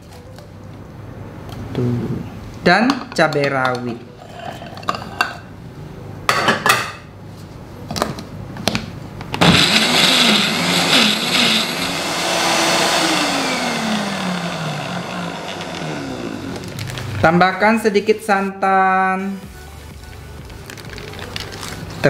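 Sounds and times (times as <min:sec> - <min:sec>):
blender motor running loudly: 0:09.4 - 0:17.2.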